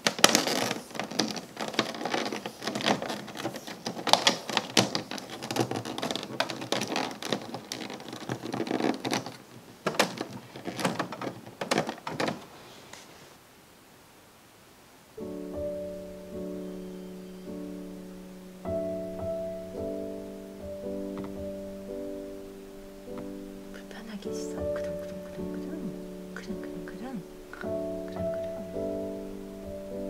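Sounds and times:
cord clicking against plastic: 0.0 - 12.5
power cord rustling: 0.0 - 13.2, 15.2 - 30.0
soft piano music: 15.1 - 30.0.

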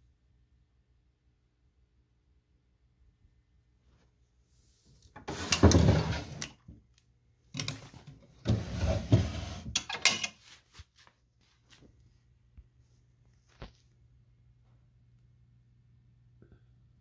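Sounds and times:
wooden drawers sliding: 5.2 - 6.6, 7.6 - 10.0.

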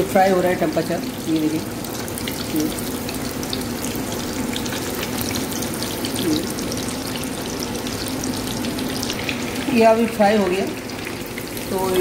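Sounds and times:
fish deep-frying in oil: 0.0 - 12.0.

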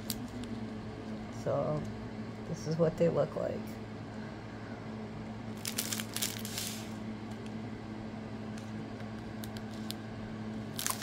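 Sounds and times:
low electrical hum: 0.0 - 11.0
packaging rustling: 5.6 - 6.9, 10.7 - 11.0.

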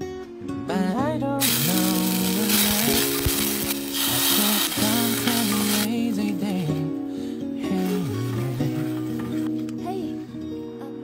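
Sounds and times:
background music: 0.0 - 11.0
garlic sizzling in hot oil: 1.4 - 5.9
wooden spatula stirring: 1.4 - 5.9.

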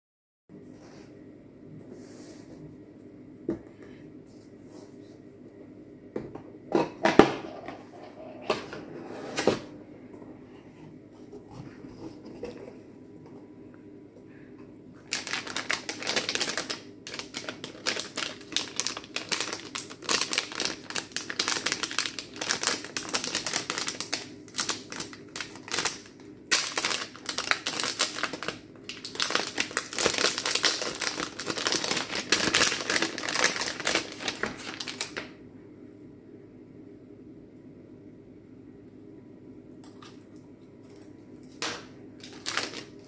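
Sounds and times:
plastic bag crinkling: 15.0 - 35.3, 41.6 - 43.0.

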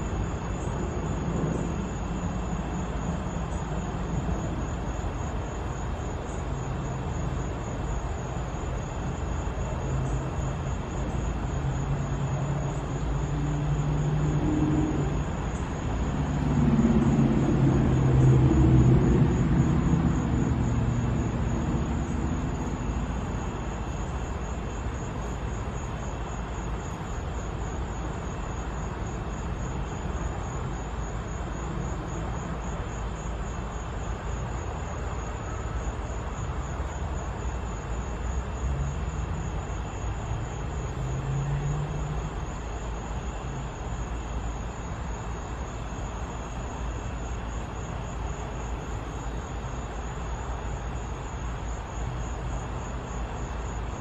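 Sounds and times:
distant engine rumble: 12.8 - 26.0.

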